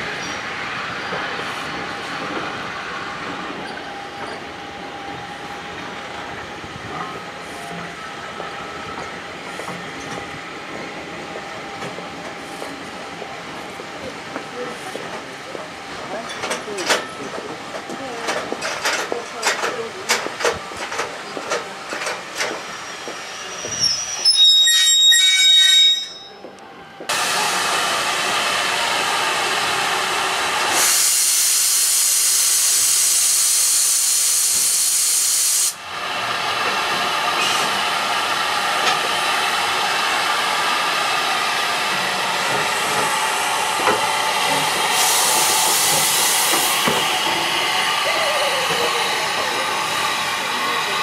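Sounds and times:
shrill steam whistle: 22.8 - 26.4
steam hissing from locomotive: 27.1 - 51.0.

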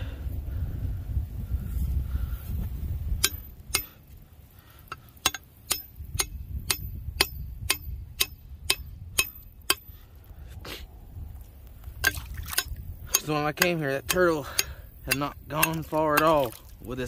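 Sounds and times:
hammer striking metal: 3.2 - 4.0, 5.2 - 9.9, 12.0 - 16.4.

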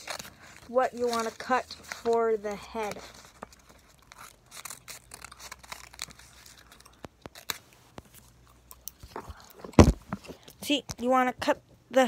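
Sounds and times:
scissors snipping paper: 0.0 - 7.6
paper rustling and crinkling: 0.0 - 8.3.

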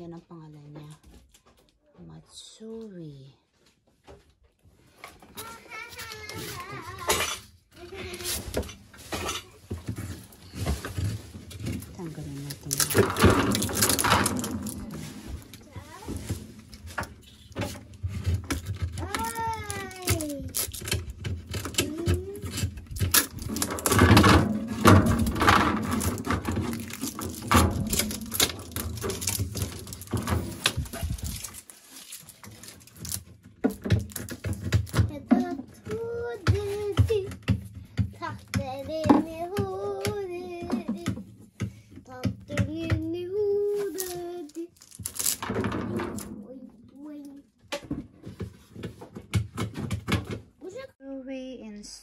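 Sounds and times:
tape peeling off plastic: 18.5 - 33.4, 43.8 - 45.4.

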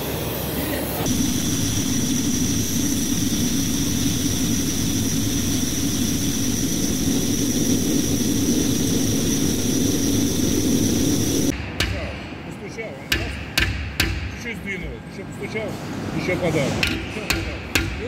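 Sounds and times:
gas torch flame hissing: 0.1 - 11.6.

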